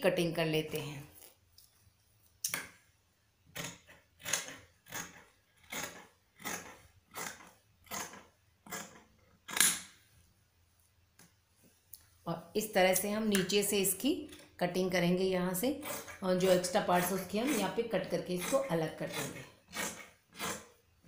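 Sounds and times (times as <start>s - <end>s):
scissors snipping fabric: 3.6s - 9.7s, 15.8s - 20.7s.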